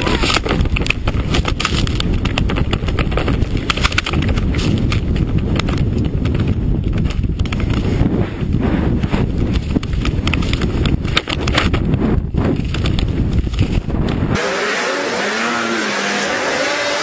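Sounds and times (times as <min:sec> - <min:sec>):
wind buffeting microphone: 0:00.0 - 0:14.4
snowmobile engine running hard: 0:14.1 - 0:17.0.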